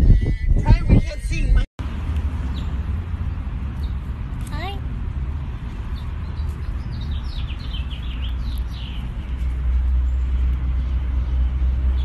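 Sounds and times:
birds chirping: 1.8s - 4.8s, 5.5s - 12.0s.

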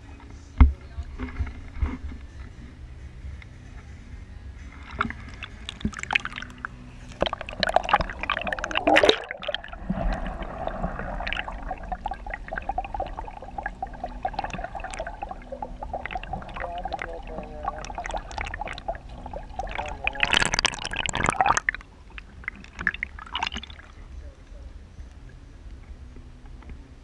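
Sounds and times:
water splashing: 4.7s - 24.1s
underwater gurgling and bubbling: 4.8s - 24.0s.

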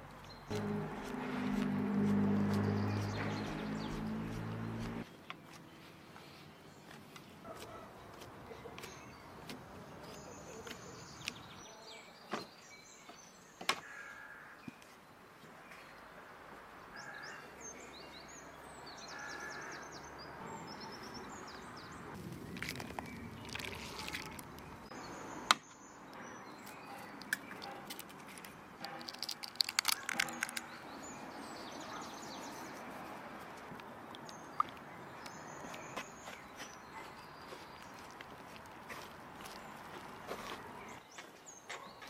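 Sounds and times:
small birds chirping: 0.0s - 14.0s, 17.0s - 42.0s
egg cracking: 22.2s - 24.8s, 27.2s - 30.7s.

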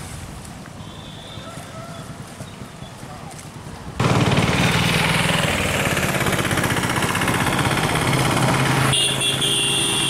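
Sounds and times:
engine running: 4.0s - 10.0s.

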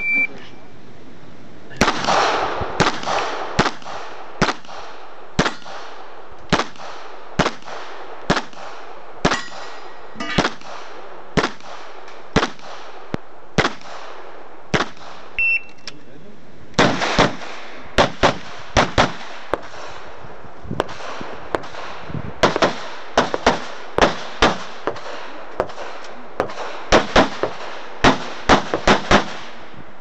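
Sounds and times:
pistol shots: 1.8s - 15.4s, 16.8s - 20.1s, 20.8s - 29.6s
steel targets clanging: 9.3s - 10.5s.

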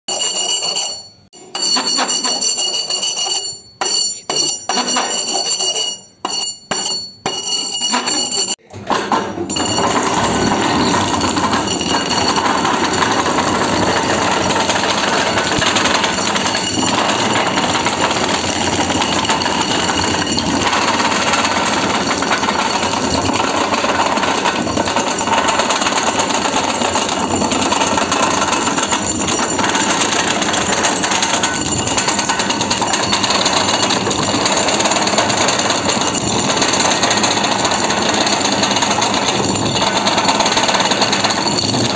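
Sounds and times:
rubber cutting machine clatter: 7.8s - 41.9s
machine whine: 9.5s - 41.9s.

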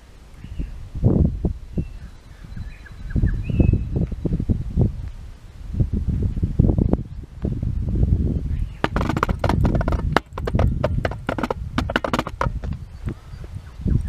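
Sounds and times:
wind rumble on microphone: 0.0s - 14.0s
microphone handling noise: 8.6s - 13.5s.

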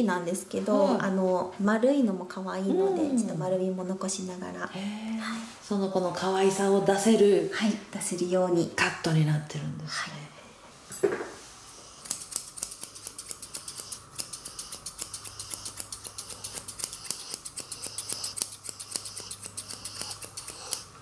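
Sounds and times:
shears snipping fur: 11.8s - 21.0s.

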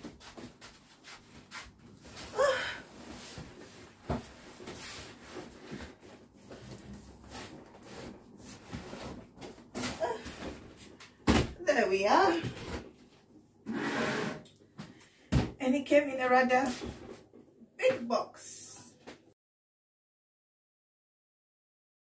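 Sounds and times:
cardboard scraping on counter: 13.7s - 14.5s.

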